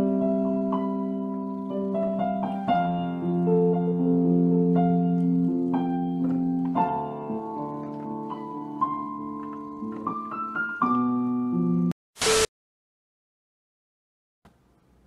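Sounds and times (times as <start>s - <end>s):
electronic keyboard piano chords: 0.0s - 12.0s
burst of noise: 12.2s - 12.5s.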